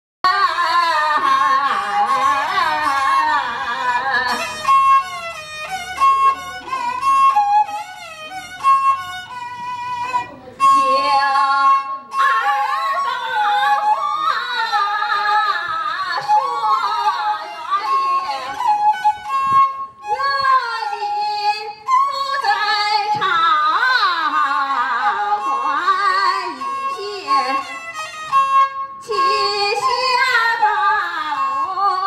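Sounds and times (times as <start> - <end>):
woman singing opera through loudspeaker: 0.3 - 4.5, 10.6 - 18.7, 20.0 - 27.8, 29.0 - 32.0
two-string bowed fiddle: 0.3 - 32.0.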